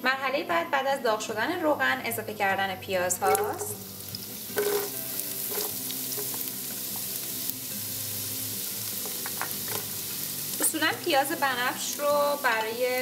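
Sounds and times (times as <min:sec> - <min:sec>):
onion sizzling in hot oil: 0:03.2 - 0:13.0.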